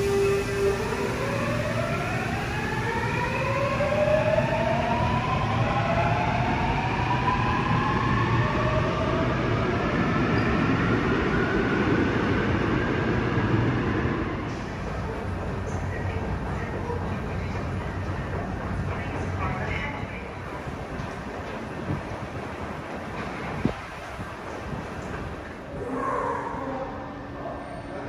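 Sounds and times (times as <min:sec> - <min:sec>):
wheels rumbling on rail: 0:00.0 - 0:26.2.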